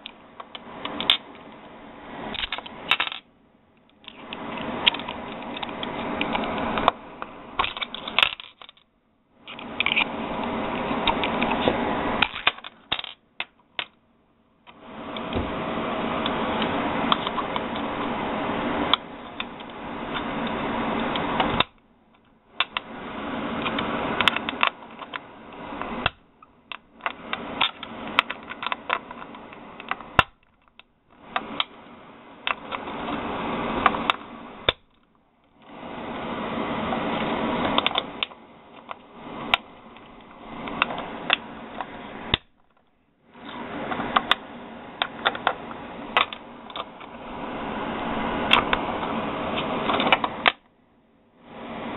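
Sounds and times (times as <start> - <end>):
fingers rustling cartridges: 2.4 - 14.0, 23.6 - 31.7.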